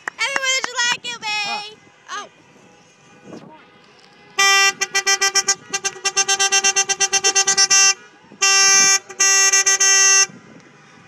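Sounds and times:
car horn beeping: 2.6s - 10.4s
car horn long blasts: 2.6s - 10.5s.

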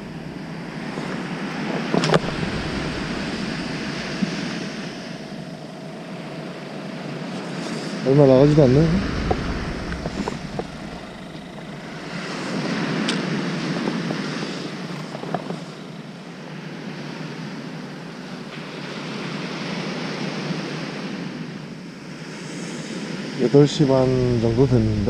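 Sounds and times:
surf washing onto beach: 0.0s - 6.4s, 7.4s - 15.7s
wind on microphone: 0.0s - 6.6s, 7.7s - 15.6s, 23.8s - 25.0s.

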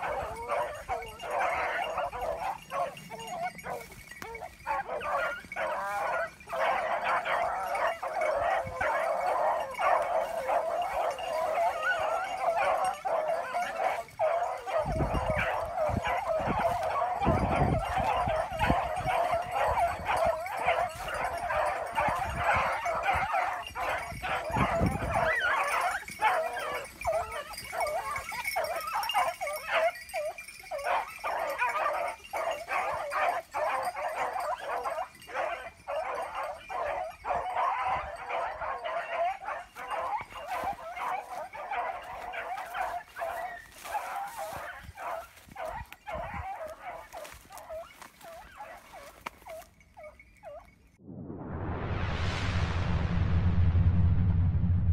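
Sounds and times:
hounds yelping and baying: 0.0s - 50.9s
low microphone rumble: 51.0s - 54.9s.

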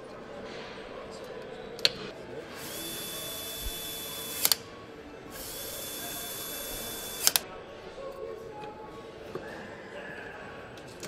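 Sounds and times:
power screwdriver whine: 2.6s - 4.6s, 5.4s - 7.4s
sharp clicks: 4.2s - 4.6s, 6.9s - 7.4s.

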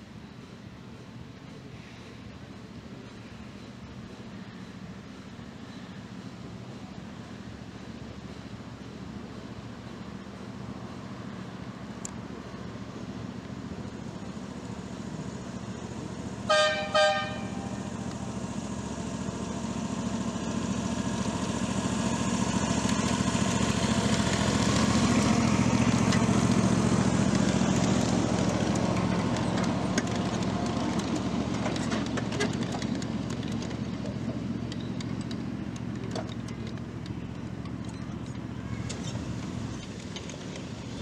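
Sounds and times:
small train running by: 0.0s - 41.0s
train whistle toots: 16.5s - 17.8s
wheels clicking over track: 17.4s - 41.0s.

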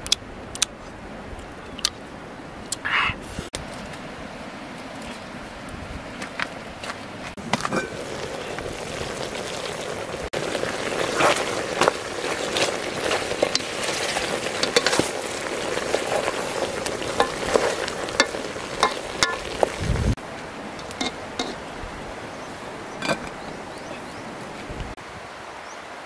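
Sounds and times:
stew bubbling and hissing: 7.4s - 20.2s
pot lid clinking: 18.2s - 19.5s.

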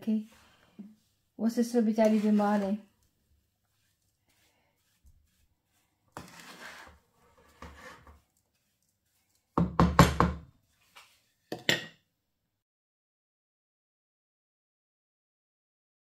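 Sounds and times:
wooden spoon scraping in pan: 0.2s - 9.6s, 10.6s - 11.5s
wooden spoon knocking on pan: 9.6s - 10.5s.

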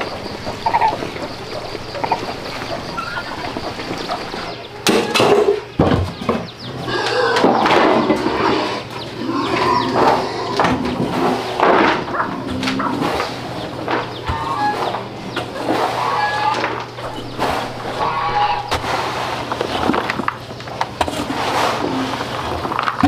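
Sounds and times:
fowl calling: 0.0s - 5.8s, 6.5s - 19.6s
scoop scraping grain feed: 15.6s - 20.3s, 21.0s - 23.0s.

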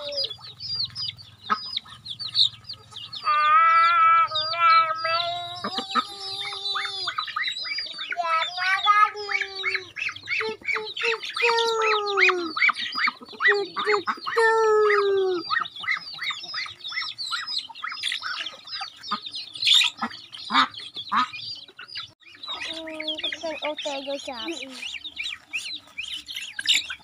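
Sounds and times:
duck squawking: 0.0s - 21.5s
chicks peeping: 0.0s - 27.0s.

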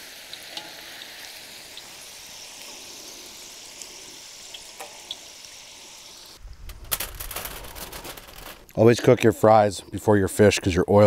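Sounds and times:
fries sizzling in oil: 0.0s - 6.4s
low rumble: 6.4s - 8.7s.

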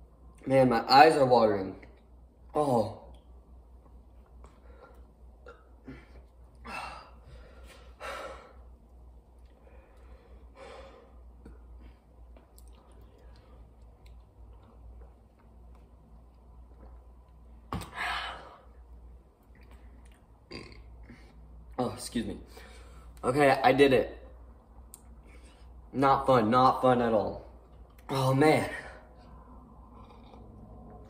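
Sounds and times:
person sighing and exhaling: 5.4s - 8.6s.

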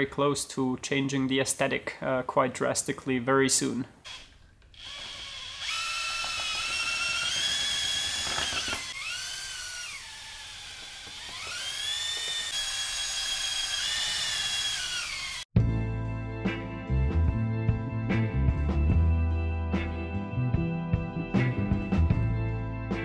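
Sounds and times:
electric drill motor whine: 4.1s - 15.5s.

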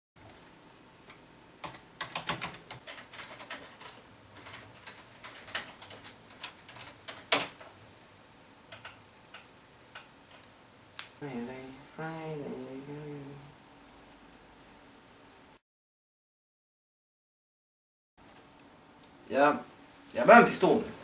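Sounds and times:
typing on a computer keyboard: 1.6s - 7.6s, 8.7s - 10.4s.

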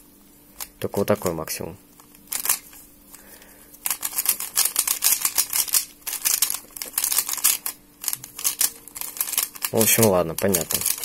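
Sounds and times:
plastic puzzle cube layers clicking: 3.9s - 11.0s.

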